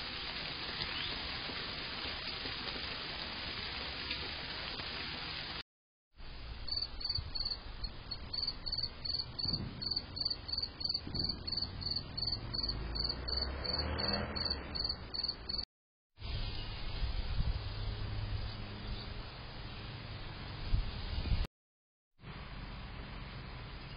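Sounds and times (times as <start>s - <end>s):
cricket chirping: 6.7s - 15.6s.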